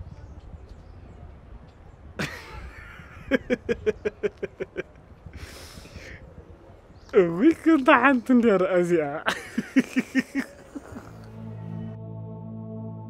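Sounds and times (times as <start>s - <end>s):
man laughing: 2.2s - 5.0s, 9.1s - 11.4s
sharp intake of breath: 5.4s - 6.3s.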